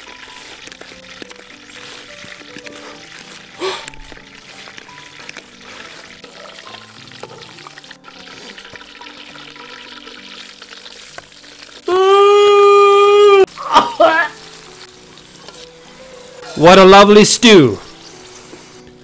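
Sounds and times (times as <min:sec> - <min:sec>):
soft background music: 0:00.0 - 0:19.0
man yelling: 0:11.9 - 0:13.5.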